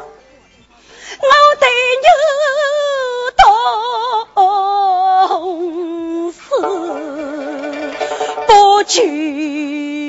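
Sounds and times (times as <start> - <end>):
short breaths: 0.8 - 1.2
woman singing with vibrato: 1.2 - 10.0.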